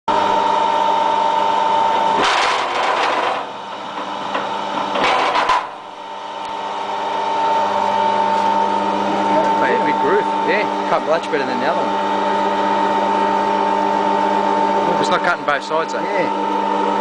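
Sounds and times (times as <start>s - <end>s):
wire stripping machine motor hum: 0.1s - 17.0s
grinding rasp of cable: 1.1s - 5.9s.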